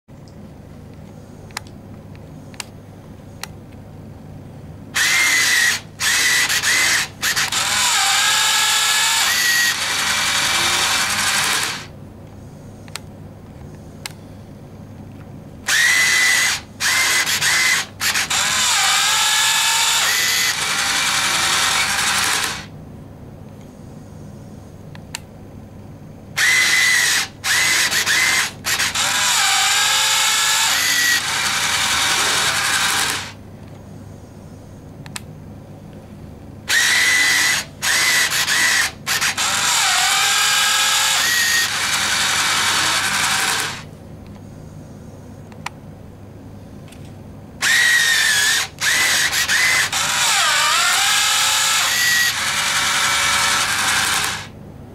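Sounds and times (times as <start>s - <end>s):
whirring motor: 5.0s - 11.9s, 15.7s - 22.7s, 26.4s - 33.4s, 36.7s - 43.9s, 47.6s - 54.6s.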